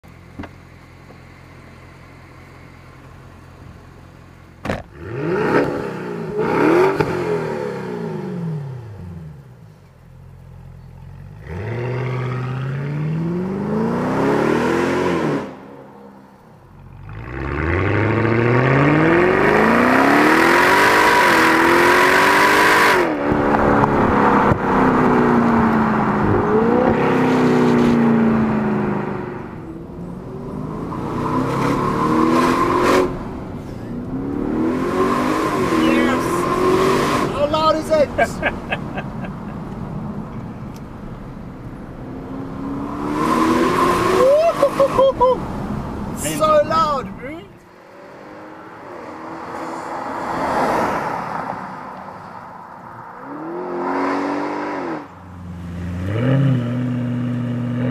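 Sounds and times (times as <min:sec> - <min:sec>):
car engine idling and revving: 0:00.0 - 0:57.9.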